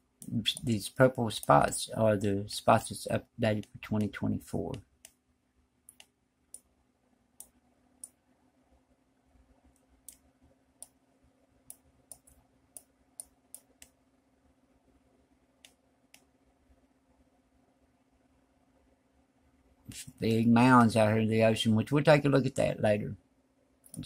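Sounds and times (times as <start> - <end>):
faint low hum: 0.0 - 24.0
mouse buttons clicking: 5.9 - 6.7, 11.7 - 14.0.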